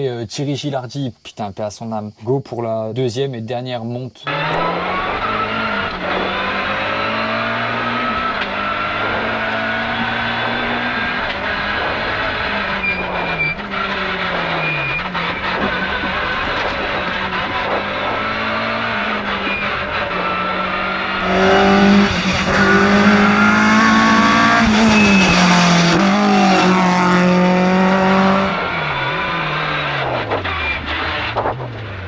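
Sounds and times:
rally car engine at high revs: 4.3 - 32.0.

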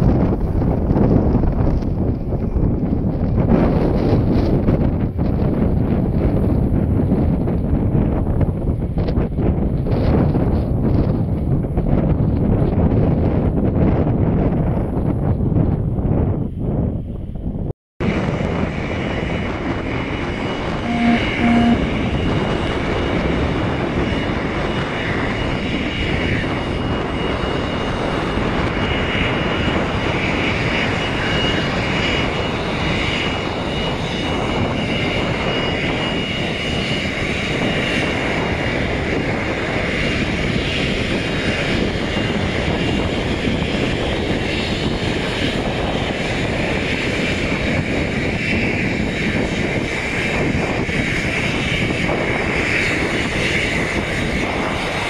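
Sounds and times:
wind on microphone: 0.0 - 55.0
jet engines whining: 18.0 - 55.0
short beeps: 20.8 - 21.9.

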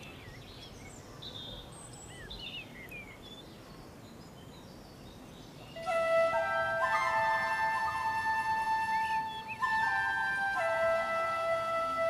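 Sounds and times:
small birds chirping: 0.0 - 12.0
flute melody: 5.8 - 12.0.

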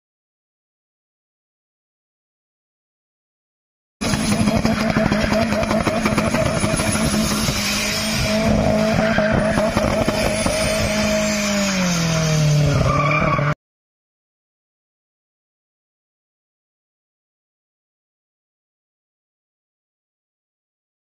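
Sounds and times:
car engine at high revs: 4.0 - 13.6
tyres squealing on concrete: 4.5 - 13.6.

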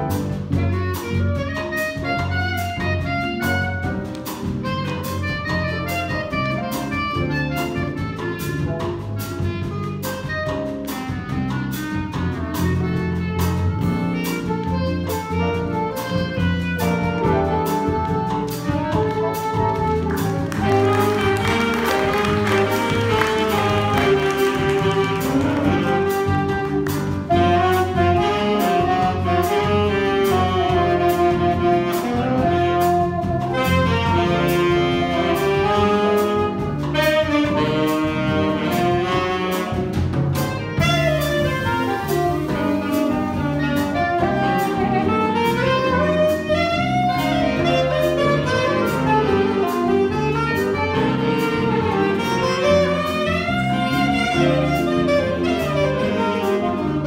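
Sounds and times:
drum kit: 0.0 - 57.0
electric bass: 0.0 - 57.0
piano: 0.0 - 57.0
reed melody: 0.0 - 57.0.

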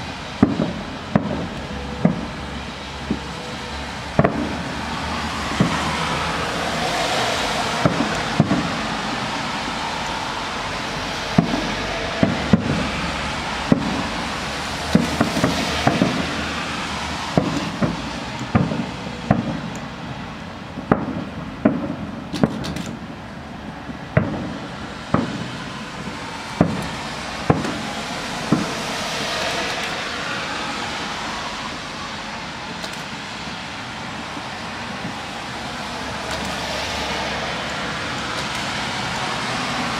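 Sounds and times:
steady background noise: 0.0 - 39.9
firework shells bursting: 0.4 - 2.4, 7.6 - 9.3, 13.6 - 16.6, 17.3 - 19.9, 20.8 - 23.1, 24.2 - 30.0, 36.2 - 36.7, 37.6 - 39.2.

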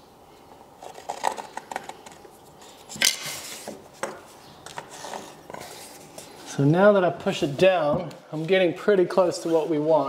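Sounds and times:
scraping rustle: 0.8 - 6.8, 8.3 - 10.0.

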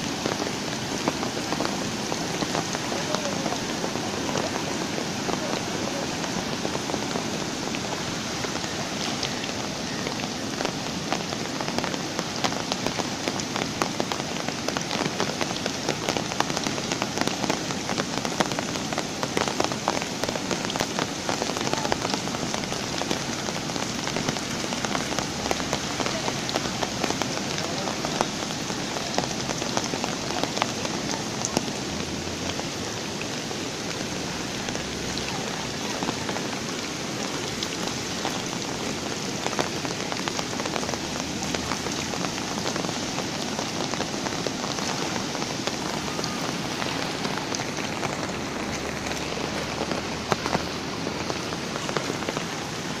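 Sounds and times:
flooding river rushing: 0.0 - 53.0
heavy rain falling: 0.0 - 53.0
raindrop taps: 34.4 - 52.6.

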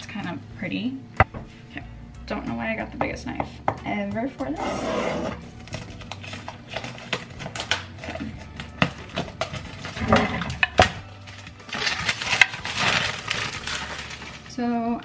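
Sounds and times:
plastic bag crinkling: 5.8 - 15.0.

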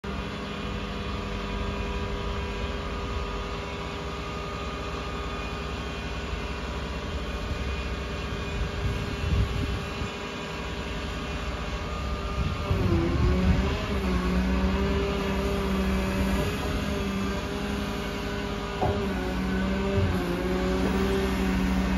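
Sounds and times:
diesel engine running: 0.0 - 21.9
hydraulic whine: 0.0 - 21.9.

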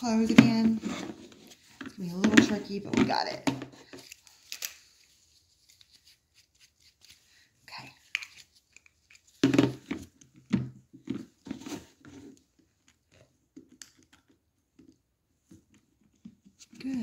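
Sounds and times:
plastic dental tool handling: 1.4 - 7.2, 8.0 - 11.2, 12.6 - 15.0.

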